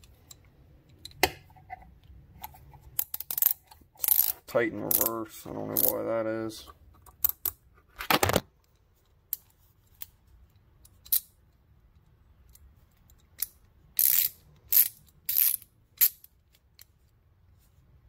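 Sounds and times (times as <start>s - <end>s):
metallic ratchet clicks: 3.0s - 5.1s, 10.9s - 11.3s, 12.5s - 16.9s
ratchet mechanism rasping: 3.0s - 6.0s, 12.5s - 16.9s.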